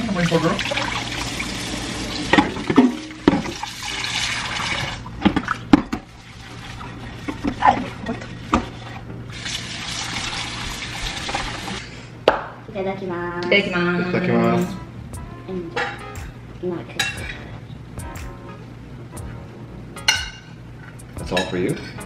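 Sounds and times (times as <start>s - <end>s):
water running: 0.0s - 11.8s
dishes and cutlery clinking: 15.7s - 16.2s, 17.0s - 17.5s, 20.0s - 22.0s.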